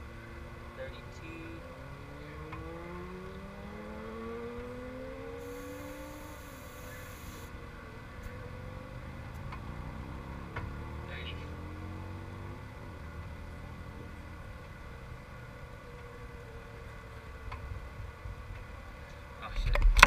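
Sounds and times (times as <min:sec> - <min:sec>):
racing engine accelerating: 0:00.0 - 0:07.5, 0:08.2 - 0:14.4.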